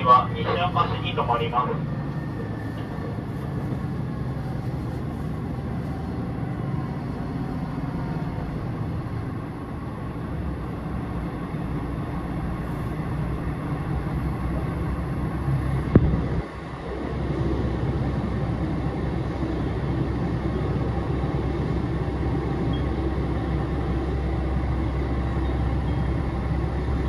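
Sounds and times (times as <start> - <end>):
train engine and wheels rumbling: 0.0 - 27.0.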